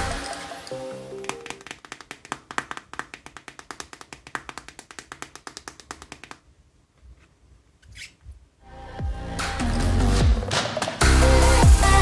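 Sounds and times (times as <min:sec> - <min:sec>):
fast run of small clicks: 0:01.2 - 0:06.4.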